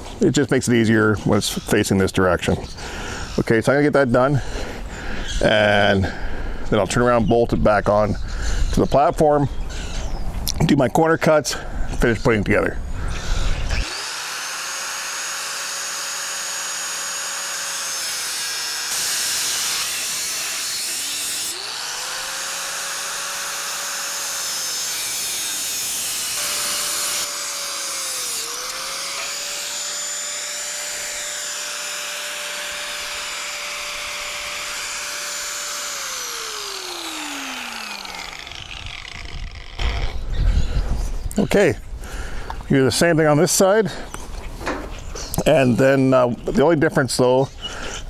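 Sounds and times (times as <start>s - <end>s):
power cutting tool motor: 13.2s - 40.3s
harsh metal cutting noise: 13.6s - 40.3s.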